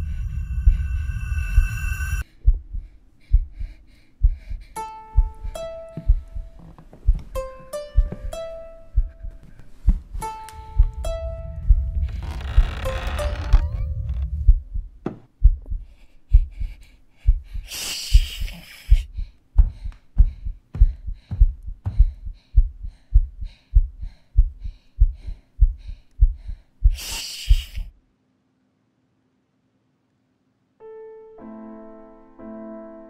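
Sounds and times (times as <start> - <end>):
faint hum: 0.0 - 7.4, 8.0 - 17.6
pounding heartbeat thumps: 0.0 - 27.9
hiss: 27.0 - 27.9.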